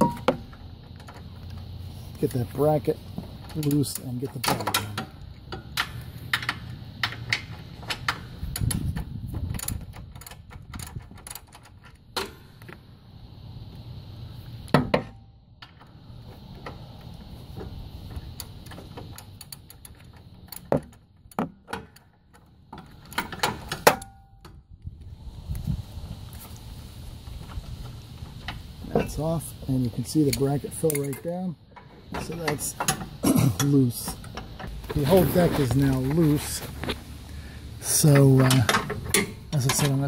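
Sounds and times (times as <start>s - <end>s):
metal clinks and knocks: 0.0s - 1.8s
ratchet wrench clicking: 18.3s - 20.8s.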